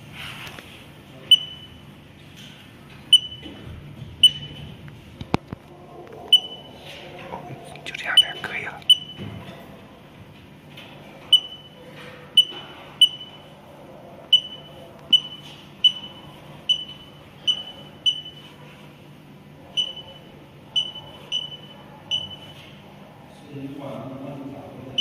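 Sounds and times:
touchscreen beeps: 1.3 - 1.8, 3.1 - 3.5, 4.2 - 4.6, 6.3 - 6.8, 8.0 - 9.2, 11.3 - 11.8, 12.4 - 13.5, 14.3 - 18.6, 19.7 - 22.7.

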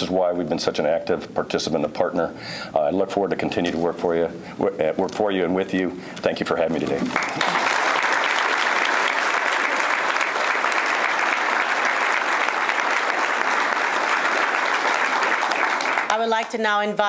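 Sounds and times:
audience applauding: 6.9 - 16.3.

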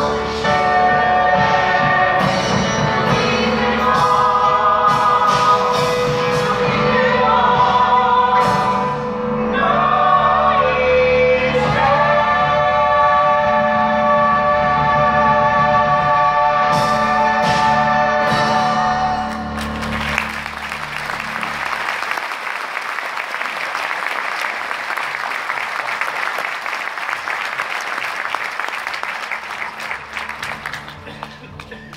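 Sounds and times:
singing over instruments: 0.0 - 19.5
audience applause: 19.3 - 31.9.

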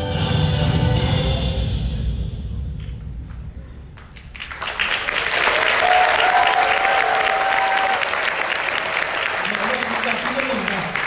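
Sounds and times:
music: 0.0 - 3.5
audience applause: 4.0 - 11.0.

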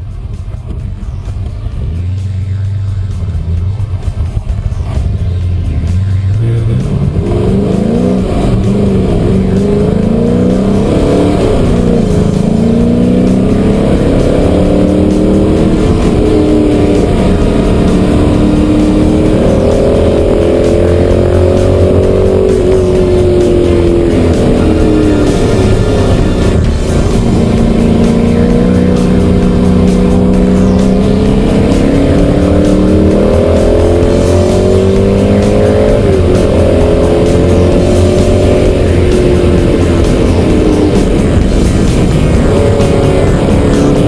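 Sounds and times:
car engine accelerating with upshifts: 0.0 - 44.0.

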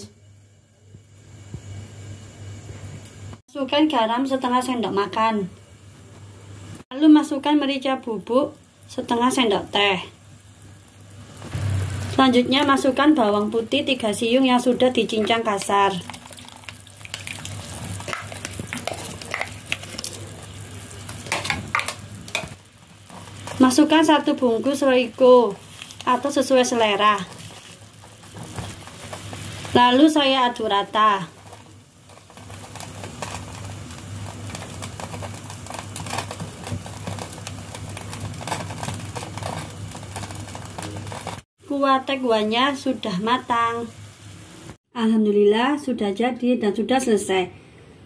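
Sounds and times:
spatula clicking and tapping: 15.2 - 20.2
broth hissing and bubbling: 16.0 - 23.4.

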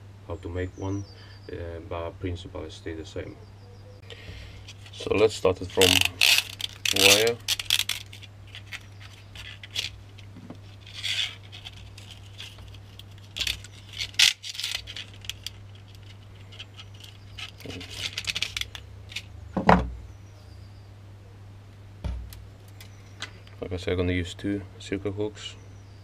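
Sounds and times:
steady low hum: 0.0 - 26.0
wire clicking and scraping: 4.6 - 19.3
knock on wooden table: 19.6 - 19.9.

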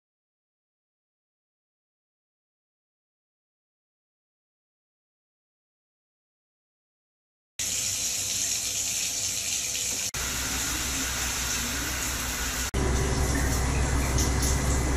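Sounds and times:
shower head spraying water: 7.6 - 14.9.

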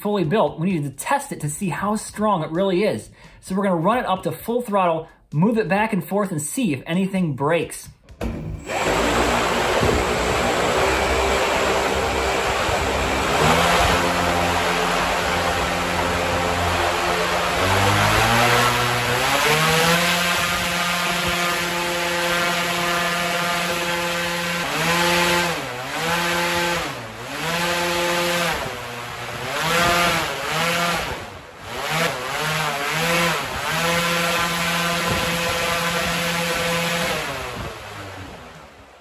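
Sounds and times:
propeller fan humming: 8.2 - 39.0.

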